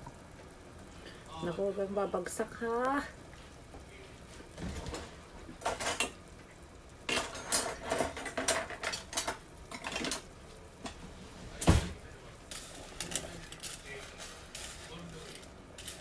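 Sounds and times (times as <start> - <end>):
utensils clattering on dishes: 7.1 - 10.3.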